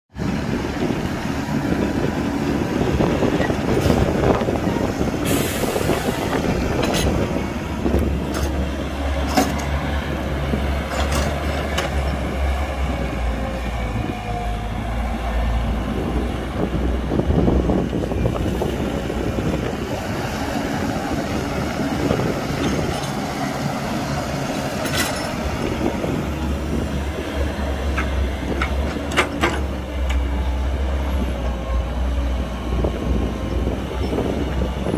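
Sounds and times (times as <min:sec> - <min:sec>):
excavator engine rumbling: 0:00.2 - 0:34.9
metal clanks and knocks: 0:09.2 - 0:09.8, 0:10.8 - 0:12.2, 0:24.8 - 0:25.4, 0:27.9 - 0:30.2.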